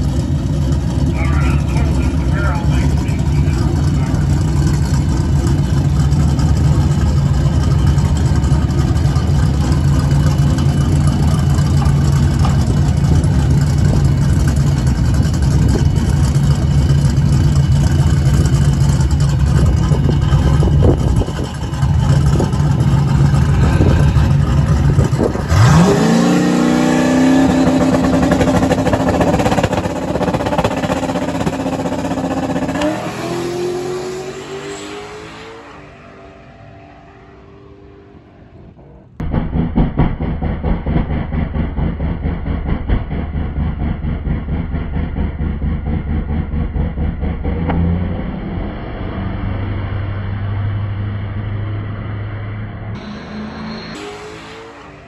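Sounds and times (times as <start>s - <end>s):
drag car engine idling choppily: 0.0s - 25.6s, 27.4s - 32.7s.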